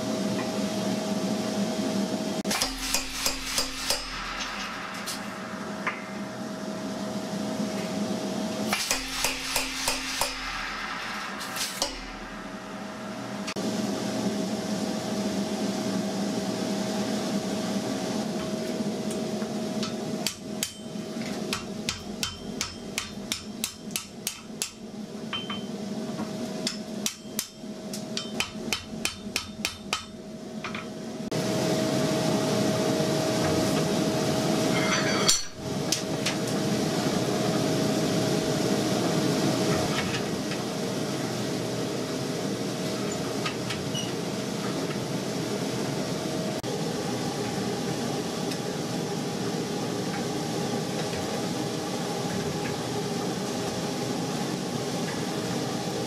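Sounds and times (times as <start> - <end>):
steady mechanical hum: 0.0 - 56.0
hammer blows on hot steel: 8.7 - 13.6.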